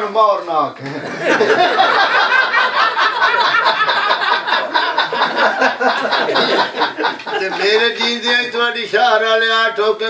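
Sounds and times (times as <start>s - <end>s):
men laughing: 0.8s - 8.7s.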